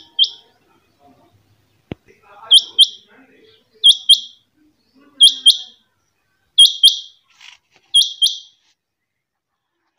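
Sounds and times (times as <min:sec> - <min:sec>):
quail double-note calls: 0:00.0 - 0:00.5, 0:06.6 - 0:07.1.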